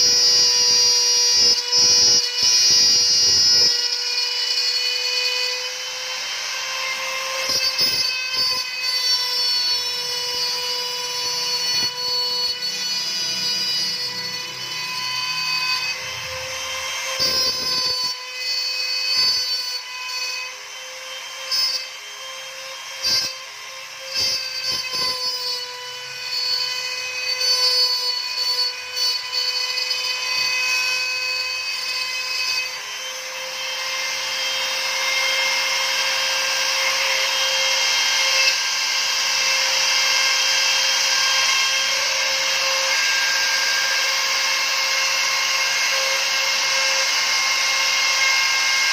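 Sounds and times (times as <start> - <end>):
spindle motor whine: 0.0 - 33.3
router bit cutting wood: 0.0 - 48.9.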